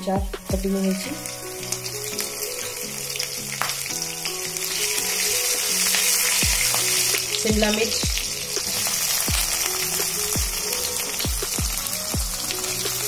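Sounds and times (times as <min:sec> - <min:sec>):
chillies sizzling in hot oil: 0:00.0 - 0:13.0.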